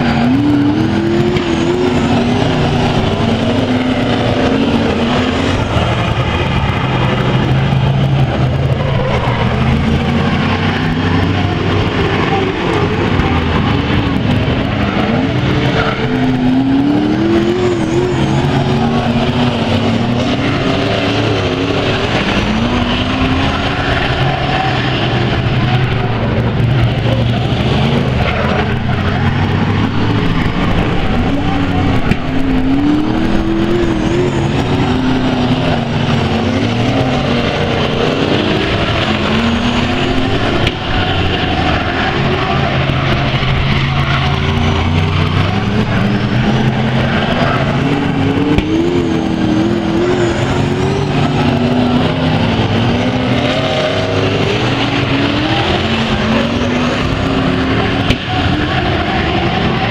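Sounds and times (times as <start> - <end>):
racing car engines revving: 0.0 - 59.9.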